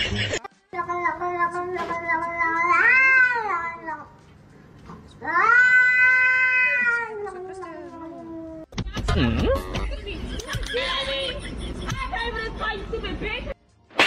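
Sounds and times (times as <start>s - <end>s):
cat yowling: 2.6s - 3.9s, 5.2s - 7.4s.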